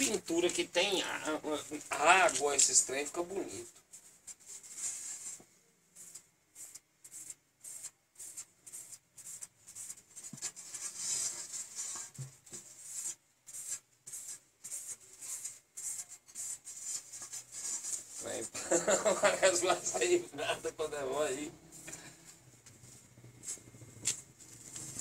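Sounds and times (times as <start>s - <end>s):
hand rubbing paper: 6.0s - 21.9s, 22.7s - 25.0s.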